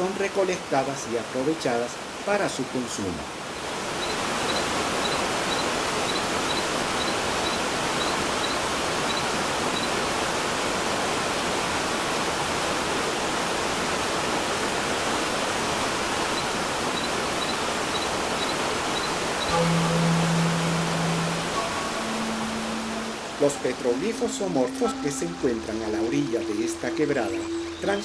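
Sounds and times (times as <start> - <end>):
waterfall pouring over rocks: 0.0 - 24.6
faint high chirp: 16.4 - 28.0.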